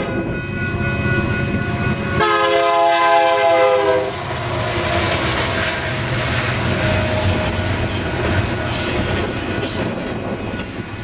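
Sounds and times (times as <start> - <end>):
locomotive air horn: 2.2 - 5.0
freight cars rumbling and rattling: 4.0 - 11.0.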